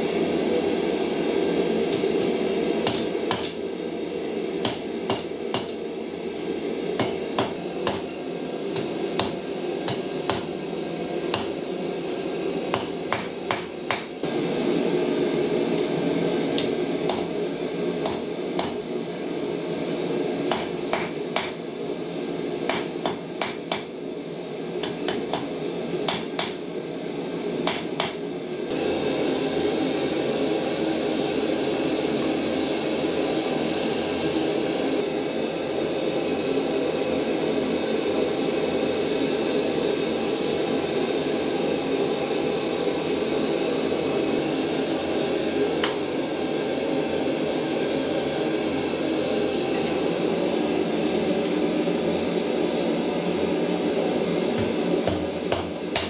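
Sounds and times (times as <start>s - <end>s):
forge burner rushing: 0.0s - 56.0s
hammer blows on anvil: 7.0s - 10.6s.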